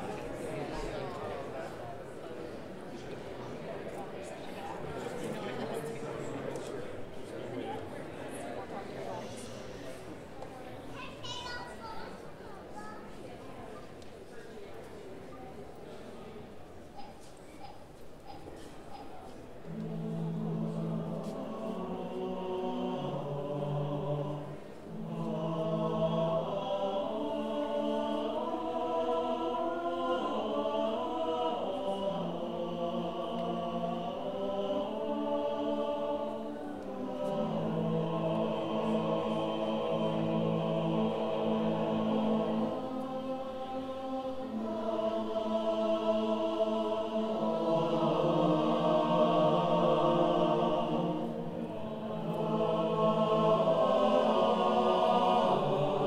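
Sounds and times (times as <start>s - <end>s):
male chorus singing: 0.0s - 9.9s, 19.6s - 56.0s.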